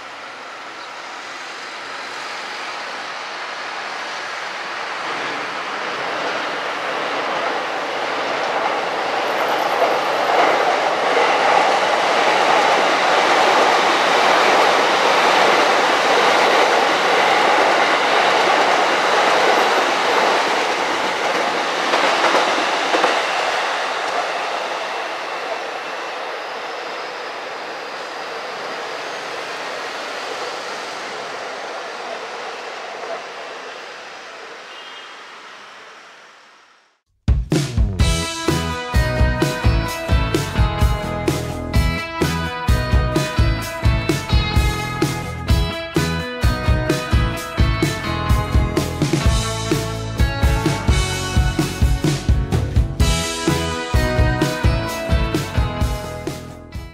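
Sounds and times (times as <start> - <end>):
electric train passing: 0.0 - 37.0, 38.0 - 56.9.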